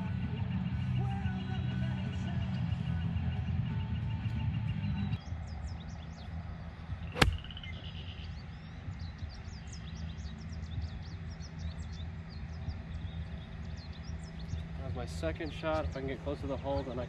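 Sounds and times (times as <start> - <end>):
birds chirping: 0.0 - 17.0
golf club striking ball: 7.2 - 7.7.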